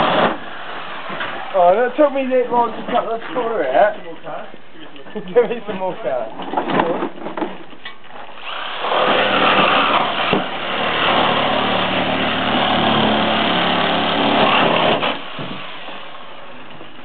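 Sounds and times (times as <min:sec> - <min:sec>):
power tool cutting sheet metal: 0:00.0 - 0:01.5, 0:08.3 - 0:16.3.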